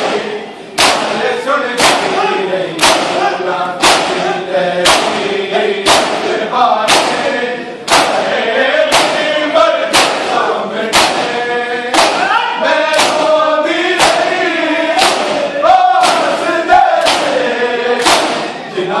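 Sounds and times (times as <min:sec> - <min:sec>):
men chanting in chorus: 0:00.0 - 0:19.0
hands slapping bare chests: 0:00.8 - 0:01.2, 0:01.8 - 0:02.2, 0:02.8 - 0:04.2, 0:04.8 - 0:06.3, 0:06.9 - 0:07.2, 0:07.9 - 0:08.3, 0:08.9 - 0:09.2, 0:09.9 - 0:12.2, 0:12.9 - 0:13.3, 0:14.0 - 0:14.3, 0:15.0 - 0:16.4, 0:17.0 - 0:17.4, 0:18.0 - 0:18.5.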